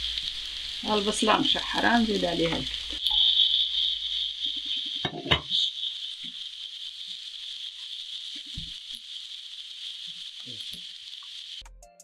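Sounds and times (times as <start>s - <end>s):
meat and onions sizzling in pan: 0.0s - 11.6s
wooden spoon knocking in pan: 5.0s - 5.6s.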